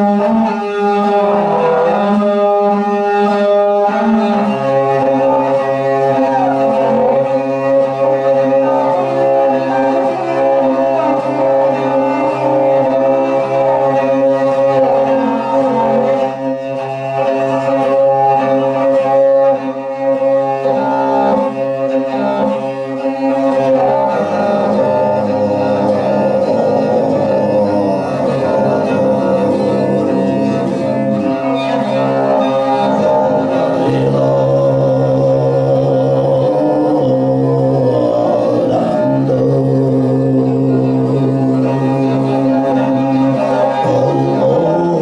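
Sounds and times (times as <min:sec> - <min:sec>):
bowed fiddle: 0:00.0 - 0:45.0
throat singing drone: 0:20.4 - 0:45.0.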